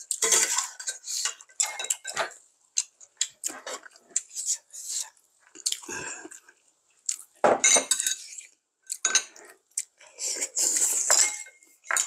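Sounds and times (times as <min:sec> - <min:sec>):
metal utensils clinking on pot: 0:00.0 - 0:02.4, 0:07.6 - 0:08.4, 0:09.0 - 0:09.4, 0:10.8 - 0:12.0.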